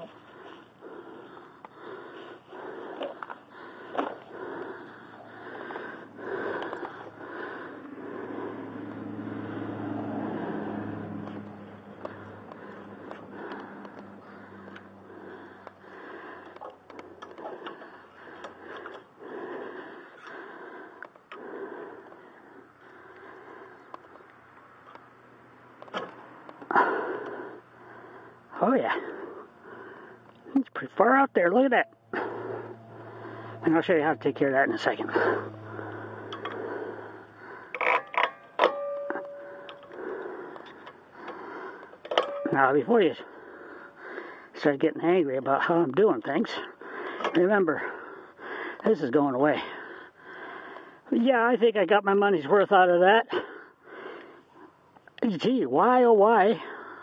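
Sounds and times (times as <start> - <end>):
man breathing: 0.0 - 31.0, 31.9 - 44.7, 46.5 - 51.1, 53.3 - 55.2, 56.4 - 57.0
low steady hum: 0.0 - 51.5
metal knocks ringing: 38.2 - 39.8, 42.1 - 42.6.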